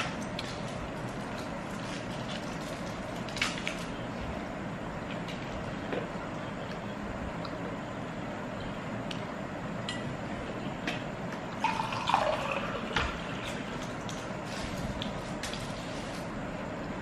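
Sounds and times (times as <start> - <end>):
steady background hum: 0.0 - 17.0
plastic rustling: 0.4 - 4.0, 14.4 - 16.4.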